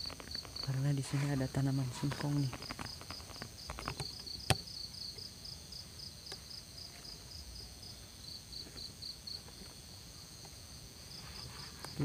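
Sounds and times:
high insect drone: 0:00.0 - 0:12.0
insects chirping: 0:00.0 - 0:12.0.

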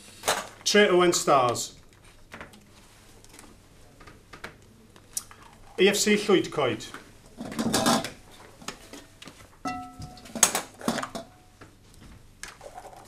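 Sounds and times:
glass ringing: 0:09.6 - 0:10.5.

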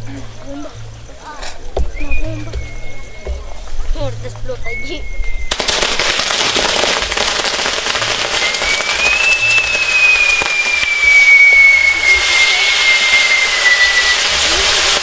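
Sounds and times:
fireworks crackling and sizzling: 0:00.0 - 0:15.0
long high firework whistle: 0:01.9 - 0:03.8, 0:04.6 - 0:15.0.

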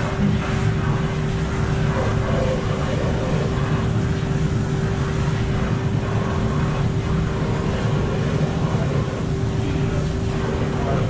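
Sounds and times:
concrete mixer motor hum: 0:00.0 - 0:11.0
rumble of turning drum: 0:00.0 - 0:11.0.

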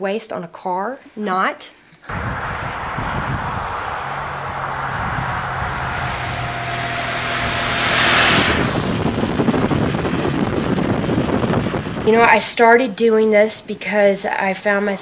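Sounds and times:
wind and road noise: 0:02.1 - 0:12.9.

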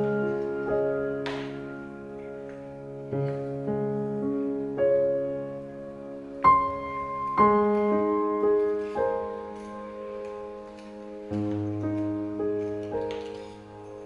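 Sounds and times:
slow gentle piano music: 0:00.0 - 0:14.0.

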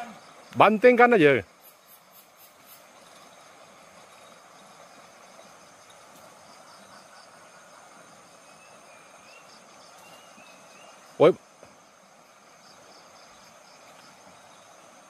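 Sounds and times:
insects chirping: 0:00.0 - 0:15.0
stream water flowing: 0:00.0 - 0:15.0.

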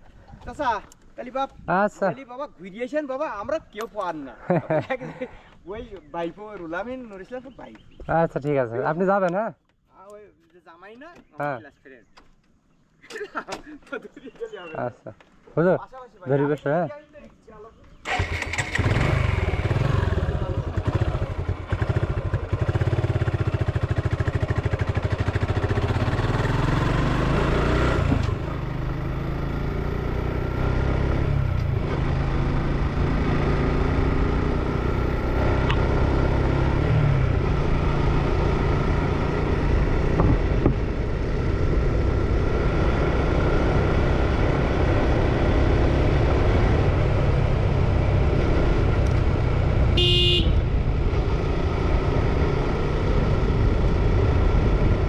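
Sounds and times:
motorcycle engine running: 0:18.1 - 0:55.0.

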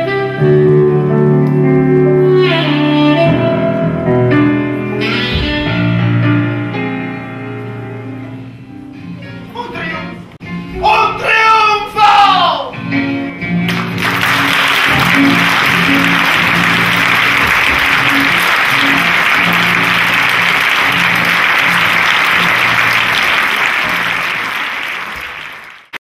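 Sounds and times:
audience applauding: 0:13.7 - 0:26.0.

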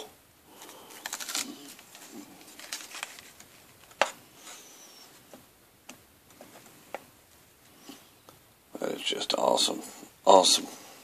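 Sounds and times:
boxes and card rustling and tapping: 0:01.0 - 0:04.6.

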